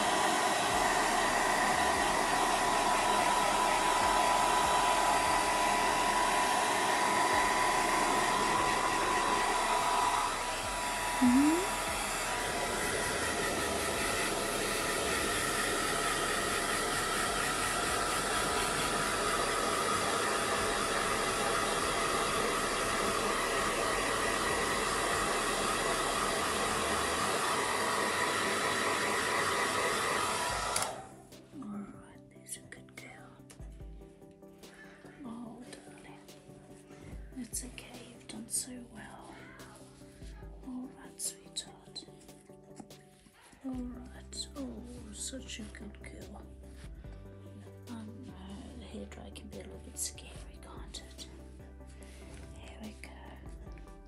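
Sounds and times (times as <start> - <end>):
hair dryer blowing: 0.0 - 31.4.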